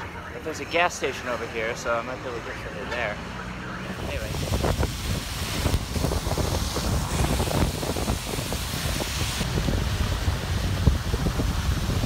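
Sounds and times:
tyres hissing on wet road: 4.0 - 12.0
wind buffeting microphone: 4.0 - 12.0.

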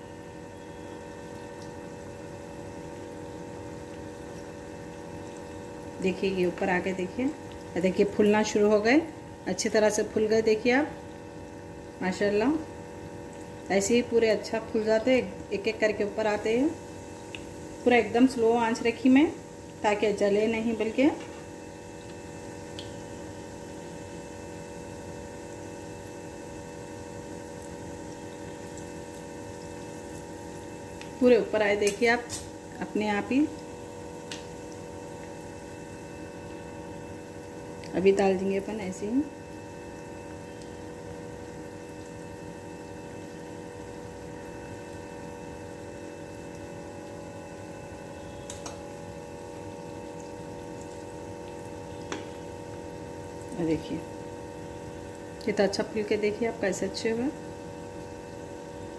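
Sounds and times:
constant hum: 0.0 - 58.9
dough sizzling in oil: 0.0 - 58.9.

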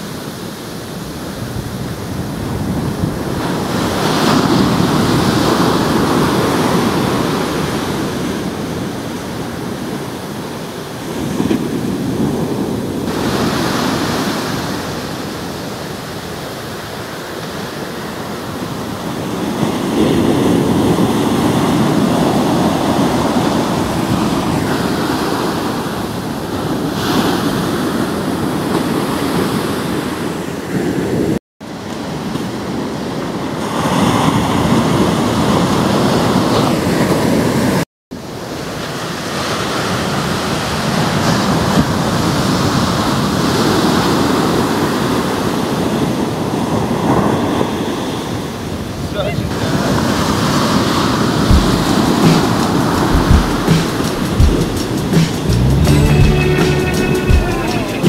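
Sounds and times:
waves crashing on sand: 0.0 - 56.0.

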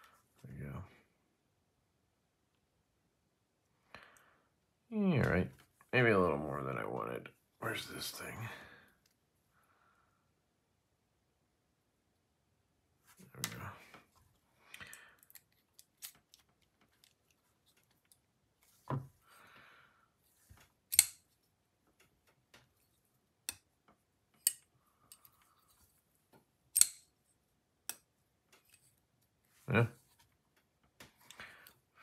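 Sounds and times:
small metal tools clicking: 20.9 - 21.2, 26.8 - 27.1.

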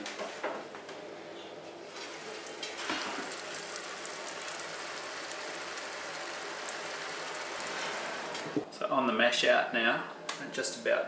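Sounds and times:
liquid pattering onto grain: 1.9 - 8.6.

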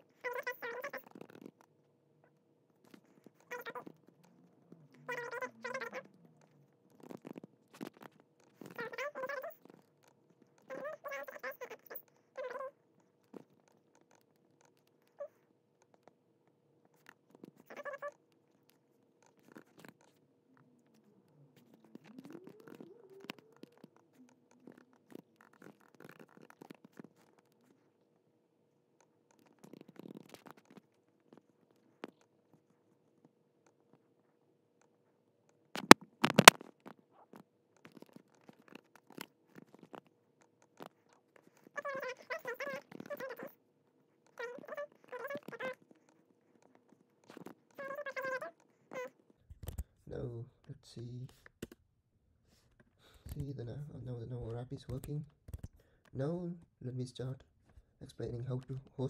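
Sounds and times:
keyboard and mouse clicks: 35.8 - 36.7.

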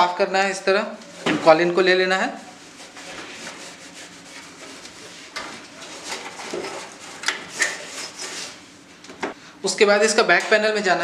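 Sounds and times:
cloth rubbing inside computer case: 2.3 - 8.8.

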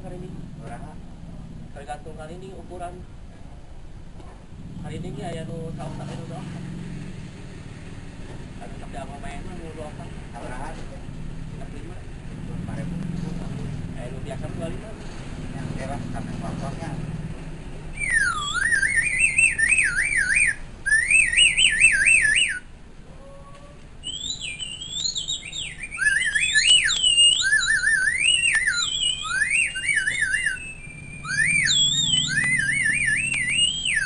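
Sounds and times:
bird-call whistle trills: 17.9 - 22.7, 24.0 - 34.0.

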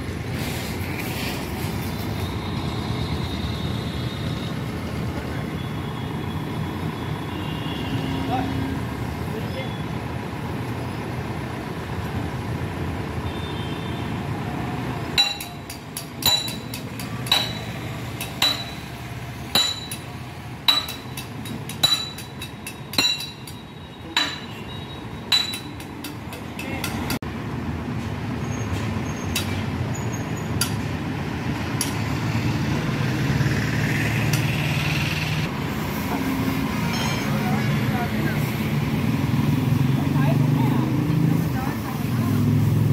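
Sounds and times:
hammer striking steel: 15.2 - 27.2, 36.8 - 37.6.

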